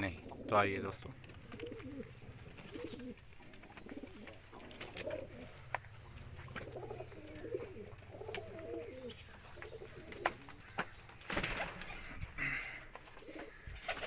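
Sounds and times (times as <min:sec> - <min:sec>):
pigeons cooing: 0:00.0 - 0:14.0.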